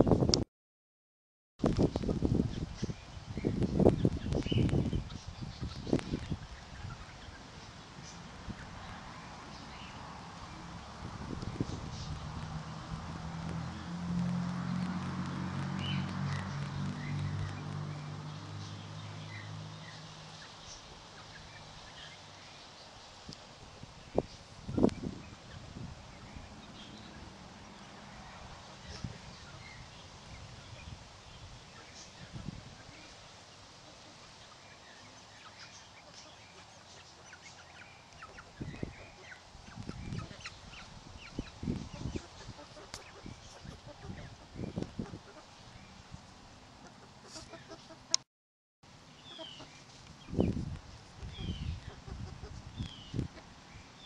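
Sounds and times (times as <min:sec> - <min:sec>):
chicks peeping: 0:01.9 - 0:12.9, 0:24.1 - 0:31.0, 0:33.8 - 0:46.1, 0:46.8 - 0:48.2, 0:49.2 - 0:53.6.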